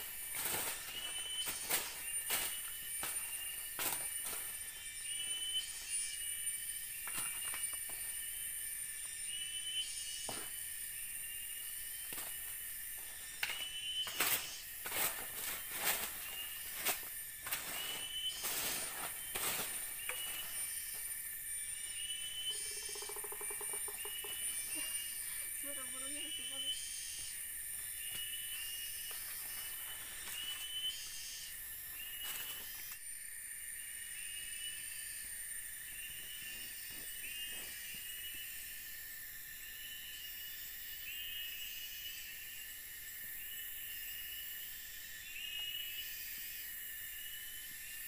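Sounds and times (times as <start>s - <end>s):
stick raking forest debris: 0.0s - 5.7s, 12.1s - 21.1s
dry leaves rustling: 0.0s - 5.9s, 14.0s - 21.2s, 29.1s - 30.8s
rustle of leaves or sticks: 0.0s - 9.2s, 10.1s - 22.0s, 24.0s - 33.1s
high-pitched insect drone: 0.0s - 48.0s.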